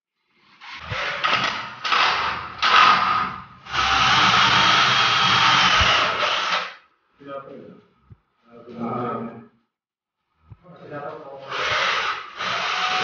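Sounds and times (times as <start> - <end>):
cordless drill running: 0.7 - 6.8, 11.5 - 13.0.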